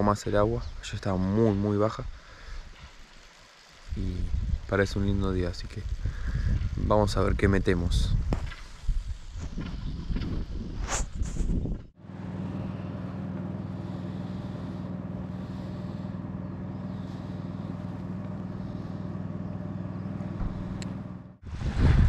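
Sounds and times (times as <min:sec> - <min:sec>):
outboard motor running: 0:12.0 - 0:21.4.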